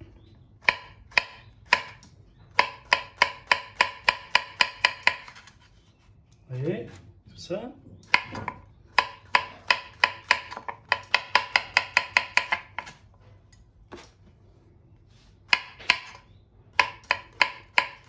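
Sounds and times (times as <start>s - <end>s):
knife tapping on cutting board: 8.1s - 12.9s, 16.8s - 18.0s.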